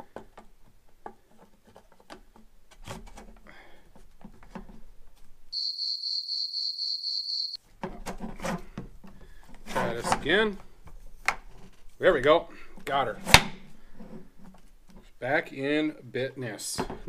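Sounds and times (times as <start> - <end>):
high-pitched pulsing tone: 5.6 - 7.6.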